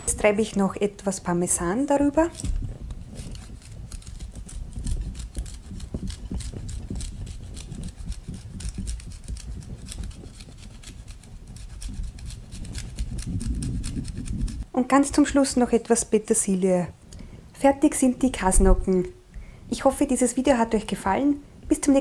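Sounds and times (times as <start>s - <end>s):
cheese grating scraping strokes: 2.0s - 14.6s.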